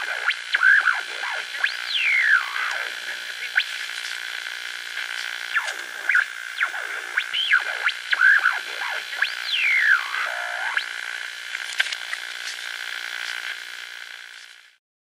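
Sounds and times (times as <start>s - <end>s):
synthesizer pitch glides: 0.0s - 3.7s, 5.5s - 11.0s
steady held synth tone: 0.0s - 11.4s.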